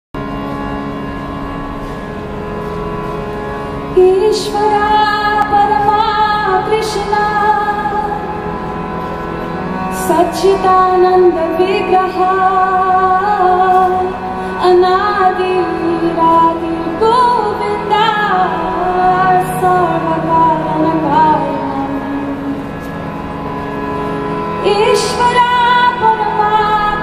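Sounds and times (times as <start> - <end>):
harmonium chord: 0.2 - 27.0
woman singing devotional melody: 3.8 - 9.0, 9.6 - 27.0.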